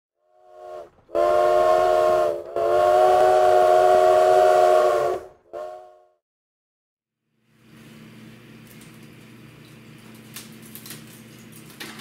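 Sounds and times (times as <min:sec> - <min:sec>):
steam locomotive chime whistle: 0:00.3 - 0:06.1.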